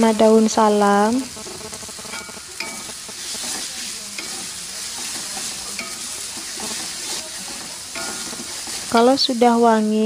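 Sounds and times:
paste sizzling in a wok: 0:00.0 - 0:10.0
metal spatula scraping pan: 0:02.0 - 0:09.3.

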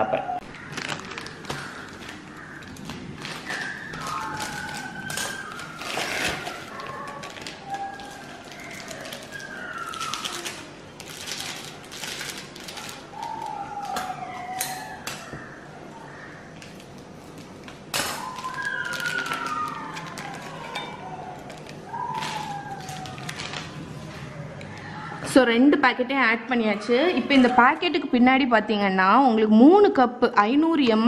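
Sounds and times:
plastic sachets rustling: 0:00.4 - 0:15.0, 0:16.1 - 0:24.5.

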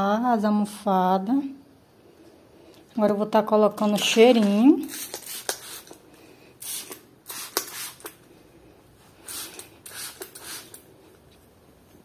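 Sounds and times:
spray bottle hisses: 0:04.8 - 0:06.0, 0:06.6 - 0:08.2, 0:09.2 - 0:10.9.

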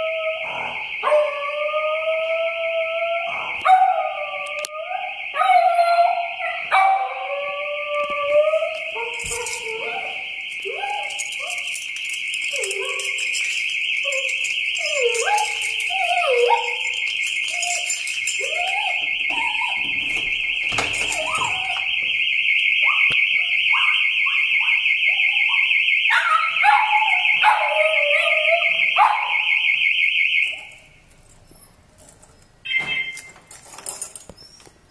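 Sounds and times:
dog howling: 0:00.0 - 0:11.8, 0:12.5 - 0:20.0
car alarm siren warbling: 0:00.0 - 0:31.1, 0:32.6 - 0:33.3.

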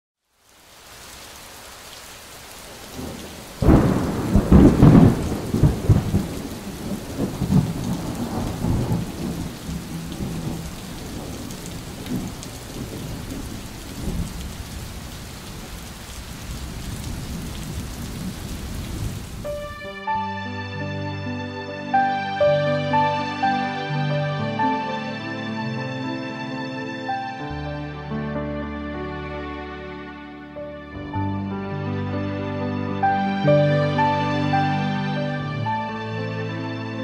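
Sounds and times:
steady rain hiss: 0:00.2 - 0:19.9
thunder rumbling: 0:02.7 - 0:19.7.

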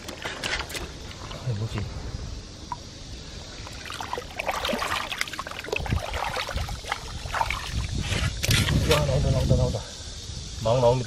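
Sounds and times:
hand squelching through wet mud: 0:03.7 - 0:09.0.

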